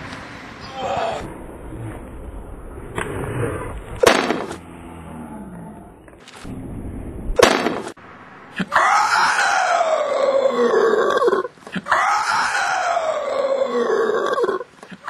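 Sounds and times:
roar-like growl falling in pitch: 0:00.7 - 0:07.2, 0:08.6 - 0:14.7
loud bangs: 0:03.8 - 0:04.8, 0:06.2 - 0:08.8.

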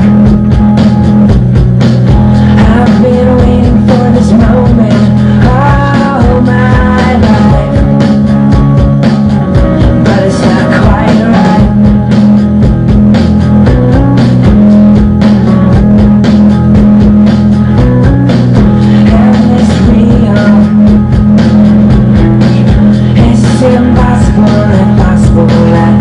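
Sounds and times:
electric guitar: 0:00.0 - 0:26.0
rock drum beat: 0:00.0 - 0:26.0
person singing: 0:02.2 - 0:12.0, 0:17.6 - 0:26.0.

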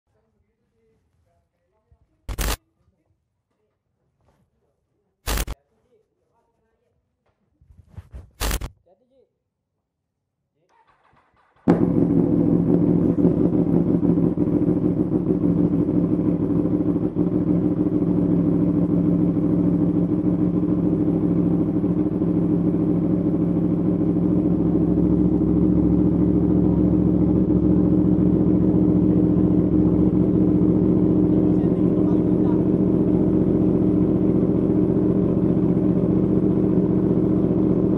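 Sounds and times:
motorcycle engine idling: 0:10.8 - 0:37.9.

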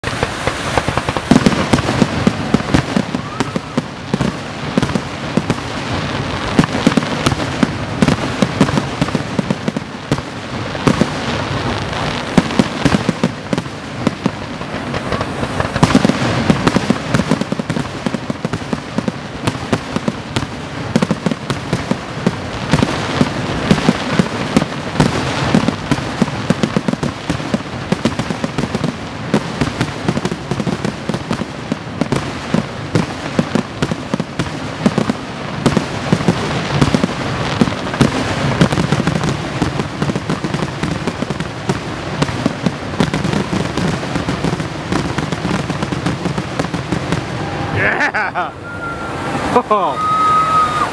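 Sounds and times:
fireworks shells bursting: 0:14.6 - 0:17.7.

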